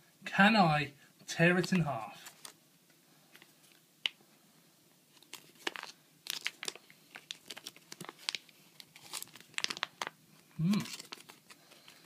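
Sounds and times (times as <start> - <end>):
plastic banknote crinkling: 1.5 - 2.6, 5.1 - 12.0.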